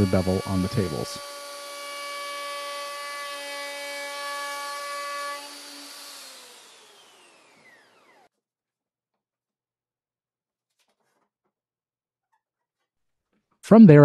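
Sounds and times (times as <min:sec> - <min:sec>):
router cutting wood: 0:00.0 - 0:08.3
router motor spinning down: 0:00.0 - 0:08.3.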